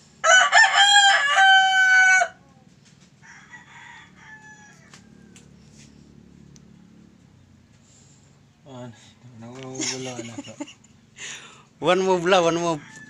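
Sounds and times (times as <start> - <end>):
rooster crowing: 0.2 - 2.4, 3.2 - 5.7, 12.4 - 13.0.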